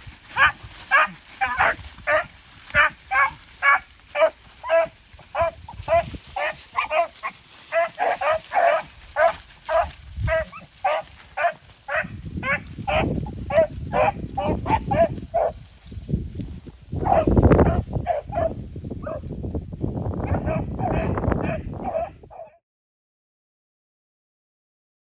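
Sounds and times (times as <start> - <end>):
dogs baying: 0.3 - 15.6, 17.0 - 19.2, 20.3 - 22.6.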